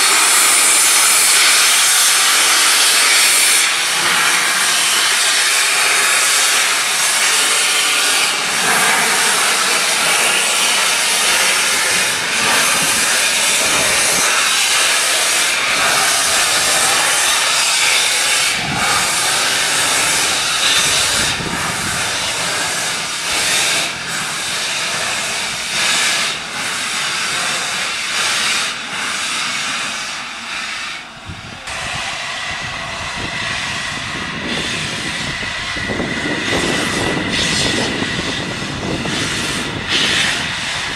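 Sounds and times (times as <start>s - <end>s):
steam hissing: 0.0s - 40.9s
steam locomotive exhaust beats: 0.0s - 40.9s.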